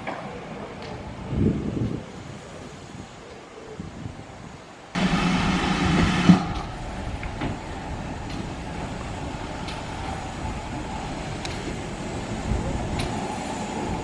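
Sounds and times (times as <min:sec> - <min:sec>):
steam locomotive running: 0:05.0 - 0:14.0
faint clicks: 0:11.4 - 0:11.8.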